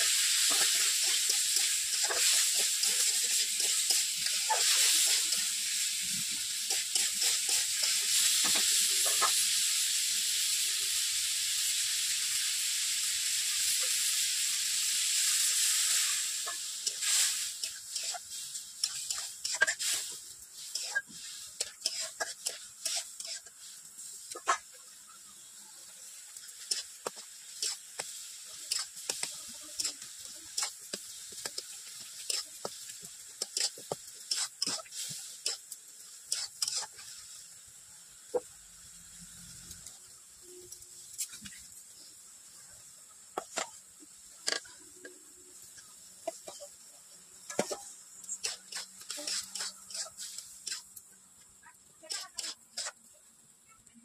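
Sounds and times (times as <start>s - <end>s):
curry hissing in a pan: 0.0s - 54.0s
sharp pops and crackles: 26.3s - 37.1s, 40.6s - 41.8s, 43.3s - 46.7s, 47.5s - 53.2s
spoon scraping pot while stirring: 47.5s - 50.9s, 52.0s - 53.0s.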